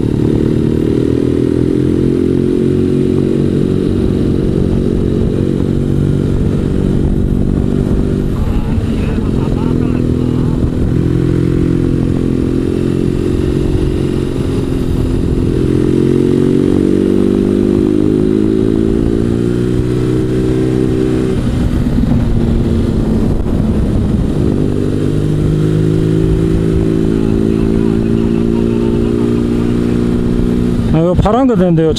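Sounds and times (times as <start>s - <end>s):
motorcycle engine running: 0.0s - 31.9s.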